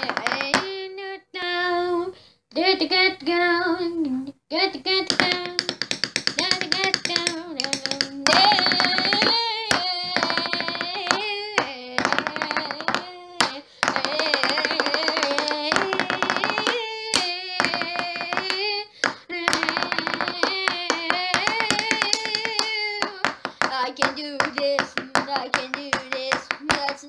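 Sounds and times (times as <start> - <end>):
person singing: 0.0 - 27.0
rapid hand percussion: 5.1 - 16.8.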